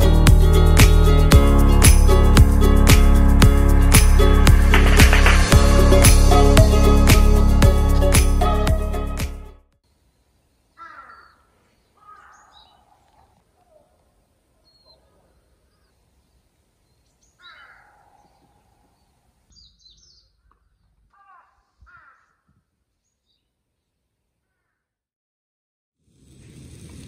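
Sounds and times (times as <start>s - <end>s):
faint bird calls: 10.7s - 23.5s.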